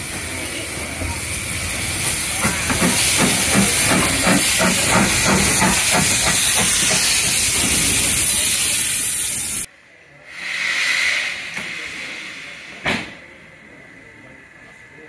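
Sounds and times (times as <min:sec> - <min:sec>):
loud hiss of steam: 0:00.0 - 0:09.7, 0:10.3 - 0:13.3
steam locomotive chuffing: 0:00.0 - 0:09.7.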